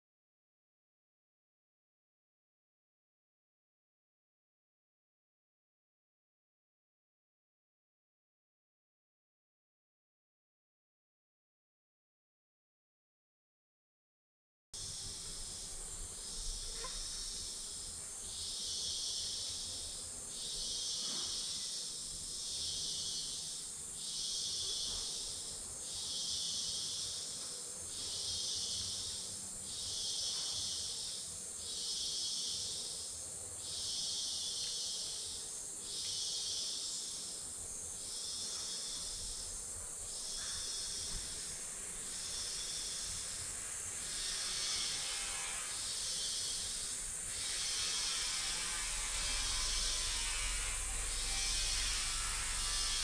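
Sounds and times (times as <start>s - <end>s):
high-pitched insect drone: 14.8s - 53.0s
pulsing insect buzz: 14.8s - 53.0s.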